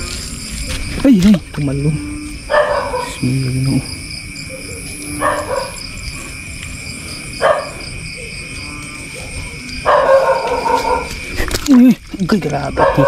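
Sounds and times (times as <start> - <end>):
high-pitched insect drone: 0.0 - 13.0
dog barking: 2.5 - 3.3, 4.4 - 5.9, 7.4 - 7.9, 9.1 - 11.2, 12.8 - 13.0.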